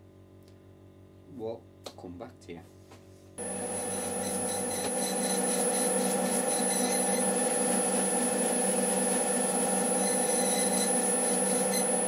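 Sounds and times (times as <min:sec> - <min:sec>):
high-pitched whine: 0:03.4 - 0:12.0
lathe motor hum: 0:03.4 - 0:12.0.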